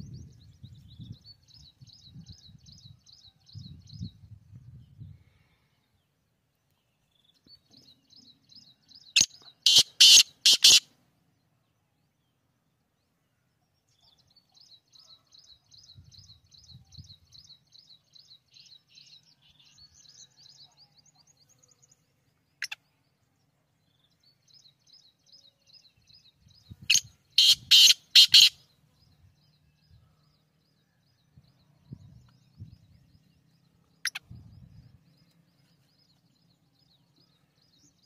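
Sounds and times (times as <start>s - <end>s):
small bird chirping: 6.7s - 10.8s, 13.8s - 23.2s, 23.8s - 38.0s
harsh grating bird call: 9.2s - 10.8s, 26.9s - 28.6s.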